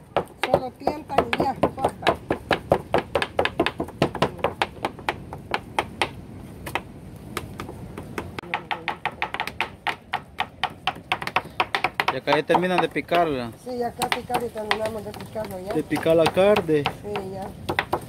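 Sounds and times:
knives chopping on cutting boards: 7.4s - 13.3s, 14.0s - 18.0s.

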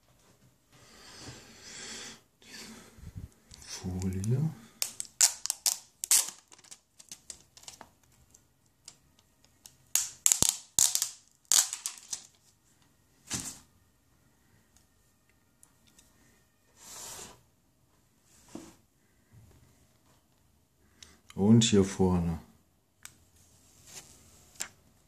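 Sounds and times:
plastic film crackling: 4.0s - 8.1s, 9.6s - 12.4s.

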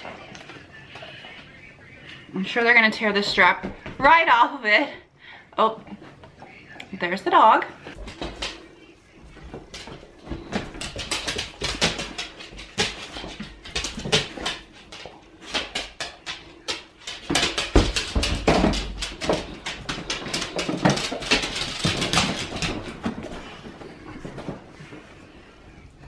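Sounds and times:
claws clicking on hardwood floor: 9.4s - 23.5s.

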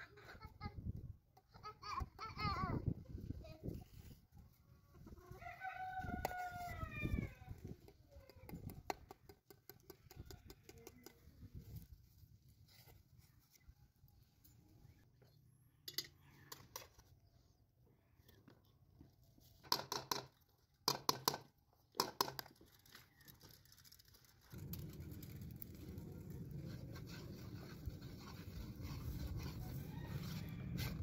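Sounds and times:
plastic bag crinkling: 22.5s - 26.0s
steady low rumble: 24.5s - 29.8s.

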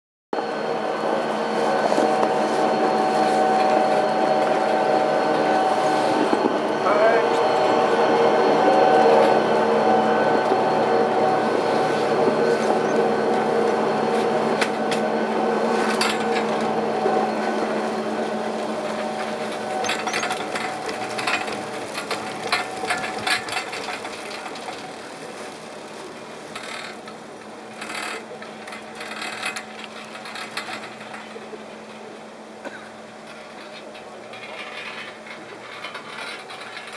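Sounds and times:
chairlift machinery hum: 0.4s - 36.9s
clicks and rattles from lift: 18.7s - 25.0s, 26.5s - 36.9s.

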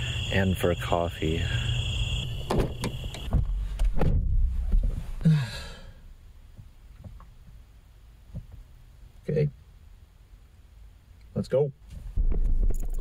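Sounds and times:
low rumbling: 1.4s - 6.8s
person sighing: 5.2s - 6.0s.

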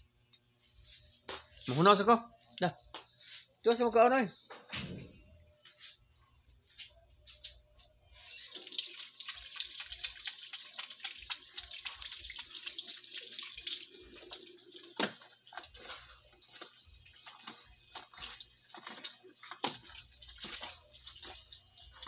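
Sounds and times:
dogs chewing and smacking: 14.8s - 22.0s.

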